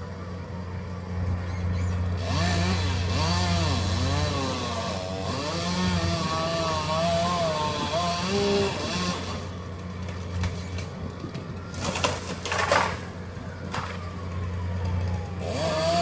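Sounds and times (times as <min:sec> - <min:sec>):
low engine drone: 0:00.0 - 0:16.0
chainsaw cutting: 0:02.2 - 0:09.6, 0:15.4 - 0:16.0.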